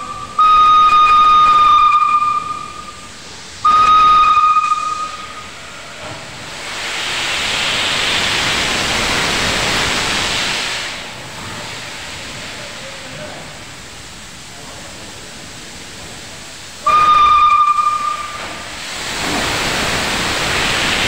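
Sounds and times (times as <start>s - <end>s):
steam locomotive whistle: 0.0s - 5.6s, 16.8s - 18.6s
locomotive venting steam hiss: 0.0s - 21.0s.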